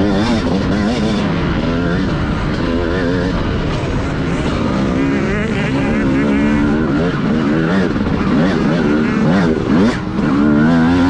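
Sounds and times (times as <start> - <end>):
motocross bike engine revving: 0.0 - 11.0
wind and track noise: 0.0 - 11.0.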